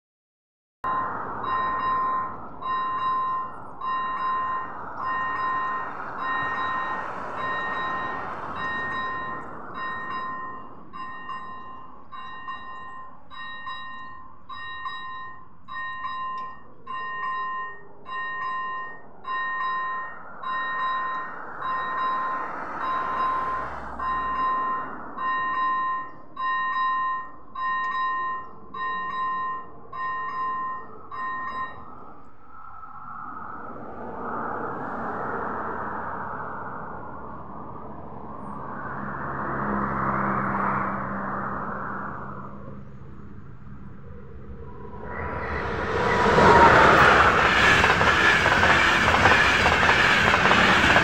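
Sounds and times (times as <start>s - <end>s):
level-crossing warning bell: 0.8s - 32.4s, 44.1s - 51.0s.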